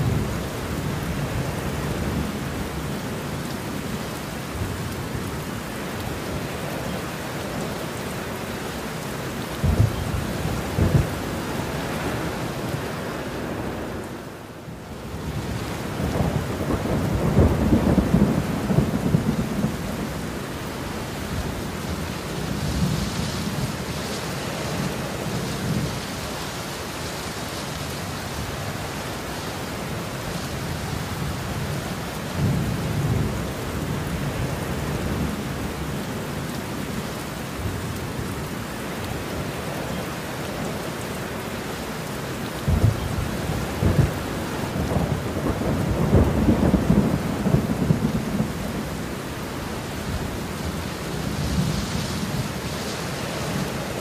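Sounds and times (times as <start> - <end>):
heavy rain: 0.0 - 54.0
thunder rumbling: 9.6 - 12.4, 15.4 - 20.2, 42.6 - 49.1.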